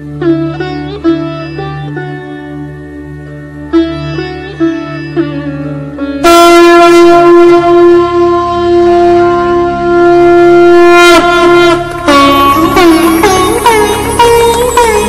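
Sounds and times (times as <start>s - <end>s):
conch shell blown: 6.2s - 15.0s.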